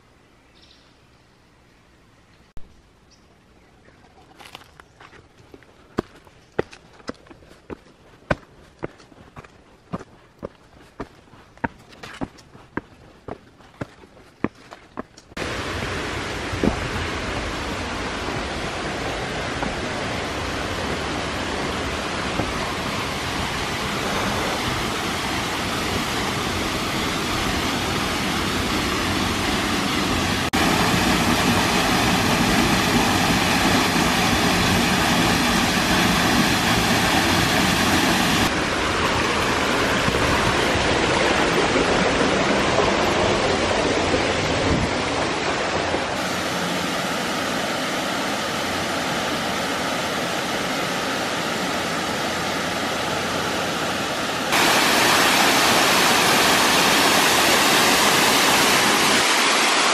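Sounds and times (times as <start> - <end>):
waterfall rushing: 15.3 - 59.9.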